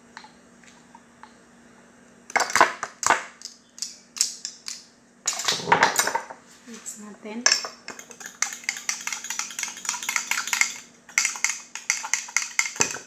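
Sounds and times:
spoon clicking: 7.9s - 12.9s
spoon scraping and knocking in jug: 7.9s - 13.0s.

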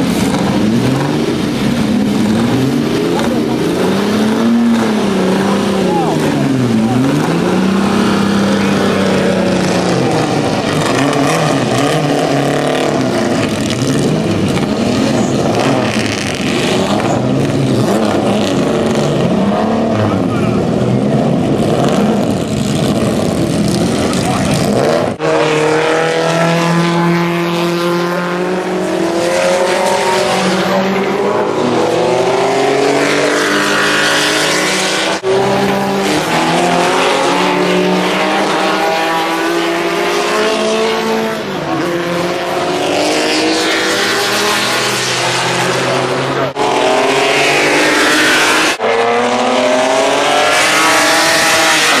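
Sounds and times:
racing car engines revving past: 0.0s - 52.0s.

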